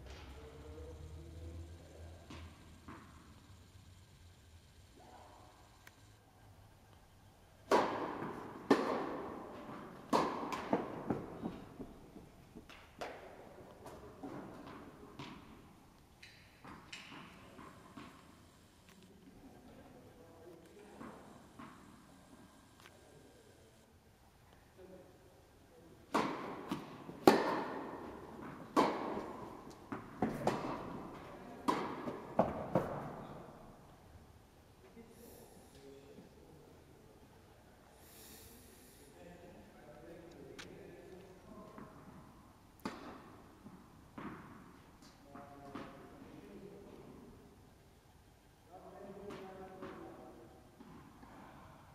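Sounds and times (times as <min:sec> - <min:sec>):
racket hitting tennis ball: 0:02.3 - 0:03.4, 0:07.6 - 0:15.6, 0:16.2 - 0:18.4, 0:20.9 - 0:21.9, 0:26.1 - 0:33.4, 0:42.8 - 0:45.1
tennis ball bouncing: 0:02.3 - 0:03.4, 0:07.6 - 0:15.6, 0:21.0 - 0:21.9, 0:26.1 - 0:33.2, 0:42.8 - 0:45.1.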